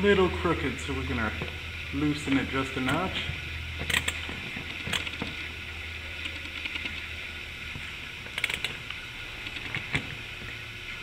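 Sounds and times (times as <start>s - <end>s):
low hum: 0.0s - 11.0s
ratchet clicks: 3.8s - 5.4s, 6.2s - 7.1s, 8.2s - 10.2s.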